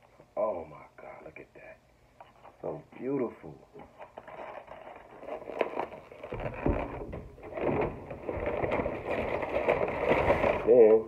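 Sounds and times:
paper bag rustling: 0:03.9 - 0:11.0.

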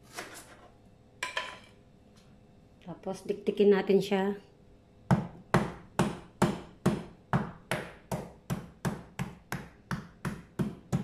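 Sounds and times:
pounding ginger on cutting board: 0:05.1 - 0:11.0.

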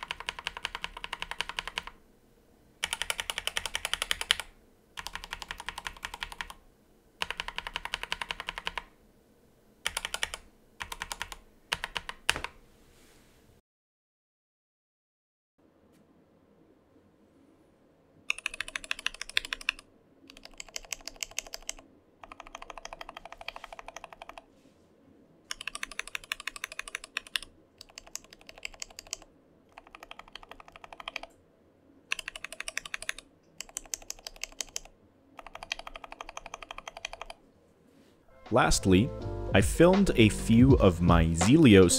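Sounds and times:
mechanical keyboard keystrokes: 0:00.0 - 0:02.0, 0:02.8 - 0:06.6, 0:07.2 - 0:08.9, 0:09.8 - 0:12.6, 0:18.3 - 0:24.4, 0:25.5 - 0:31.3, 0:32.1 - 0:37.4.

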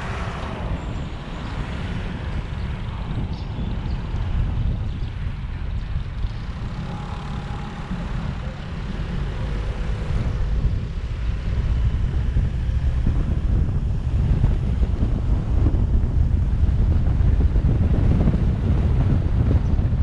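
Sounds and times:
car road and wind noise: 0:00.0 - 0:20.0.

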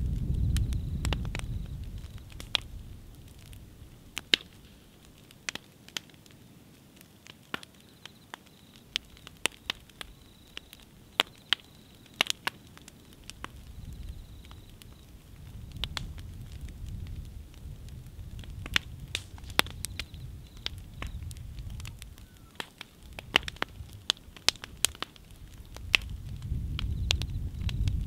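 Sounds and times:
fire crackling and popping: 0:00.0 - 0:28.0.

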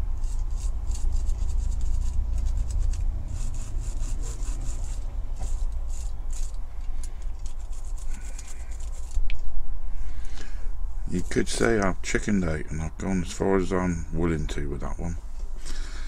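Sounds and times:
wire brush scrubbing metal: 0:00.0 - 0:09.2.

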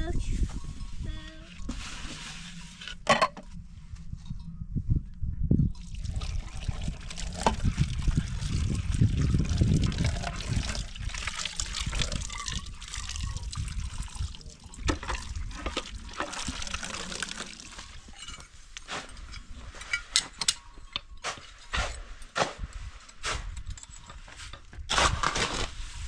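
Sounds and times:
tap water running into basin: 0:05.8 - 0:18.2.

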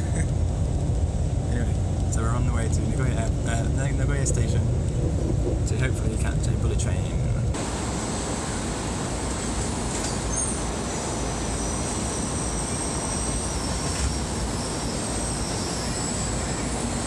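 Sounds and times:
train rumble: 0:00.0 - 0:17.0
high braking whine: 0:07.4 - 0:17.0.

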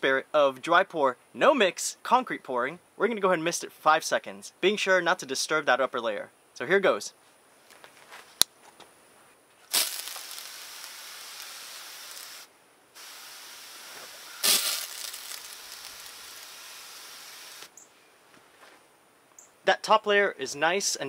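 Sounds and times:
hose nozzle mist hissing: 0:09.7 - 0:17.7.

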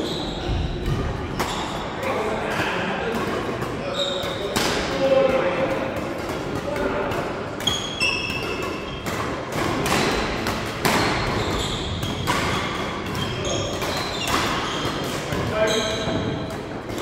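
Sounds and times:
shoes squeaking on floor: 0:00.0 - 0:00.8, 0:03.8 - 0:04.6, 0:07.6 - 0:09.1, 0:11.0 - 0:17.0
racket striking shuttlecock: 0:07.6 - 0:15.4.

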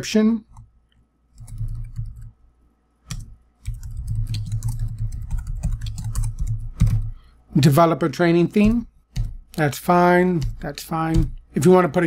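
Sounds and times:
computer keyboard typing: 0:01.4 - 0:02.3, 0:03.1 - 0:07.2, 0:08.5 - 0:09.6, 0:10.3 - 0:11.4.

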